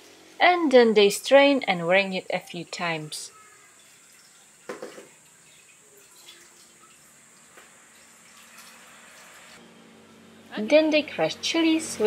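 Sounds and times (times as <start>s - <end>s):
liquid trickling into metal pot: 3.7s - 9.6s.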